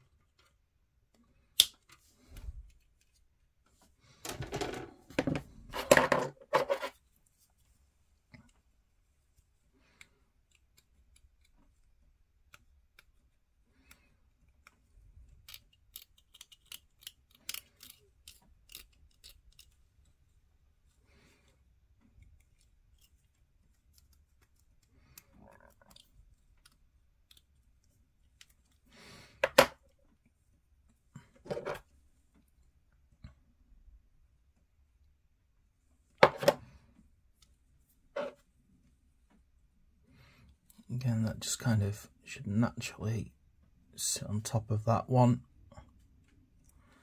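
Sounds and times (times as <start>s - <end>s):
craft knife scraping plastic: 4.8s - 7.0s.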